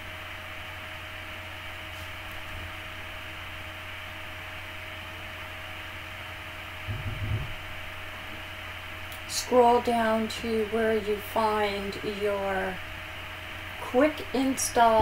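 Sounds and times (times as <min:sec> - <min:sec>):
electrical hum and hiss: 0:00.0 - 0:15.0
brief low rumble: 0:06.9 - 0:07.7.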